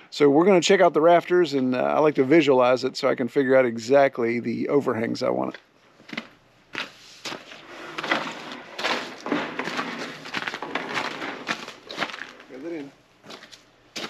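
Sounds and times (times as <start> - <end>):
wooden boards scraping and knocking: 7.3 - 12.5.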